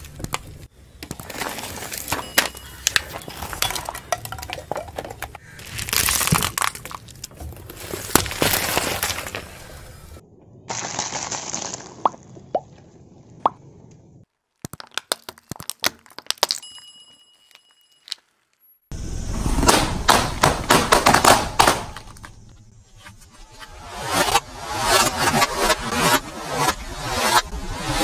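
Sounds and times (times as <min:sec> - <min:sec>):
objects crunching under car tyre: 0:00.0 - 0:12.9, 0:14.2 - 0:18.7
balloons popping: 0:14.5 - 0:16.7.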